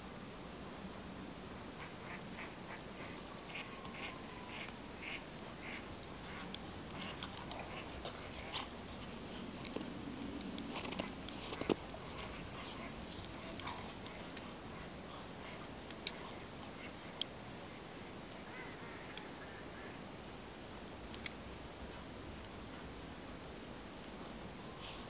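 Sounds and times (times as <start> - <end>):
geese and ducks calling: 1.8 - 9.3
sharp clicks: 20.7 - 21.4.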